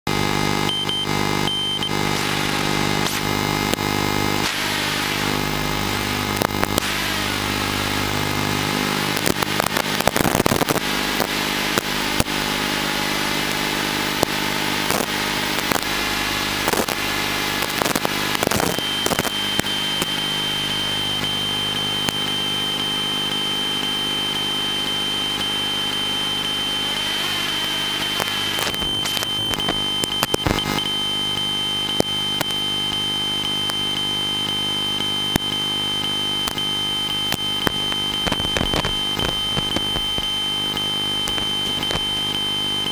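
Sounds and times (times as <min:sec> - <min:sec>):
drone motors whirring: 0:00.1 - 0:42.9
sharp crackling clicks: 0:06.3 - 0:06.9, 0:09.2 - 0:12.4, 0:14.2 - 0:15.9, 0:16.6 - 0:17.0, 0:17.6 - 0:20.3, 0:28.0 - 0:33.8, 0:35.3 - 0:42.4
steady high tone: 0:06.8 - 0:42.9.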